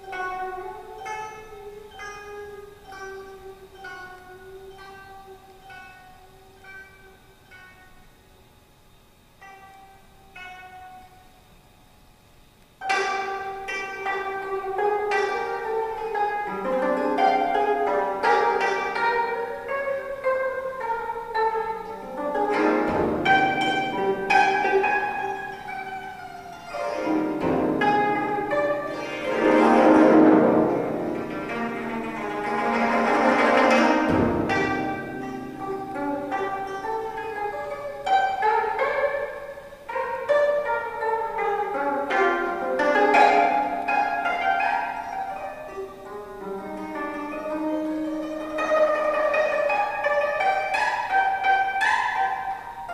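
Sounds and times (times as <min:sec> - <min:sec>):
plucked zither notes: 0:00.0 - 0:08.2, 0:09.4 - 0:11.3, 0:12.8 - 0:52.9
strings struck hard together: 0:21.8 - 0:26.0, 0:26.7 - 0:39.2.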